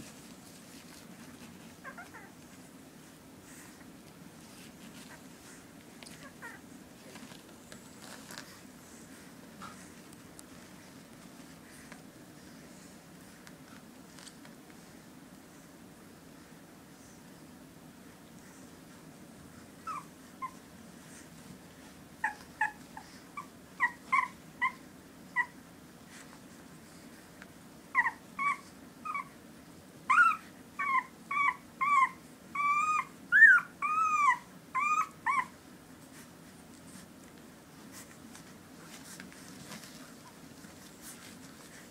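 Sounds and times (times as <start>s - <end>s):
puppies whining: 1.3s - 2.6s, 4.4s - 9.1s, 19.8s - 21.2s, 22.2s - 25.6s, 27.9s - 29.4s, 30.0s - 36.2s
puppies squeaking: 22.2s - 24.8s, 30.1s - 35.5s.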